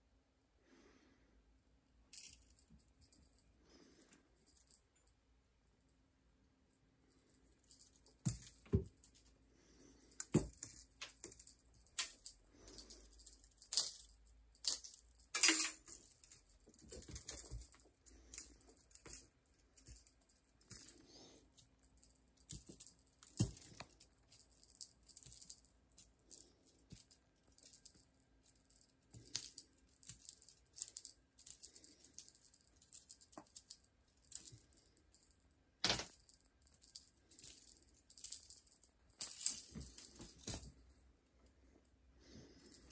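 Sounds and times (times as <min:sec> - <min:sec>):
shaker and jingle percussion: 0:10.1 - 0:35.3.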